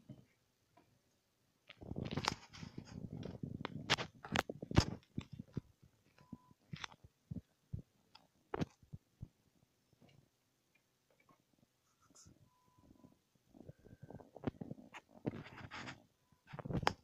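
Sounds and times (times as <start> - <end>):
kitten scratching and rustling: 1.7 - 5.7, 14.5 - 17.0.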